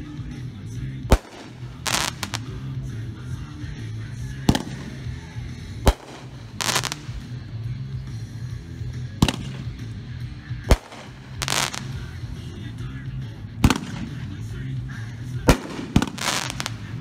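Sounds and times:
firework bangs: 0:01.1 - 0:02.6, 0:04.5 - 0:07.4, 0:09.2 - 0:09.9, 0:10.6 - 0:12.2, 0:13.6 - 0:14.4, 0:15.5 - 0:17.0
crackling firework sparks: 0:01.1 - 0:02.8, 0:04.5 - 0:07.4, 0:10.6 - 0:12.5, 0:15.5 - 0:17.0.

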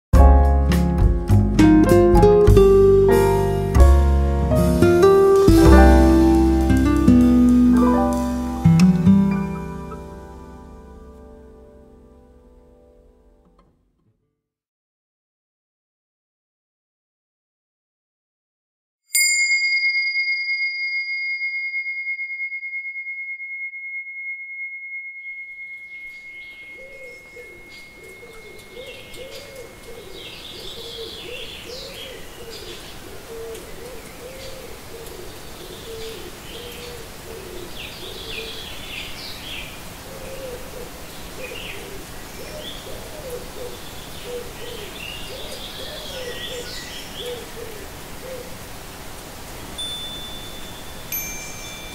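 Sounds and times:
steady hiss: 0:04.4 - 0:10.9, 0:26.1 - 0:51.9
chime ringing: 0:19.1 - 0:30.4, 0:49.8 - 0:51.9
birds chirping: 0:25.9 - 0:48.6
low hooting calls: 0:26.5 - 0:38.7.

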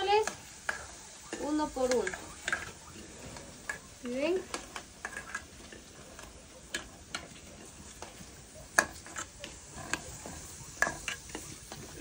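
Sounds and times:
plantain frying in oil sizzle: 0:00.0 - 0:12.0.

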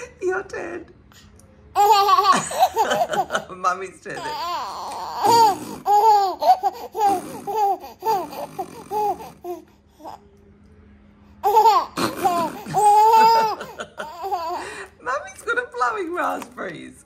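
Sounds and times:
baby laughing: 0:01.8 - 0:03.5, 0:04.1 - 0:10.2, 0:11.4 - 0:14.9.

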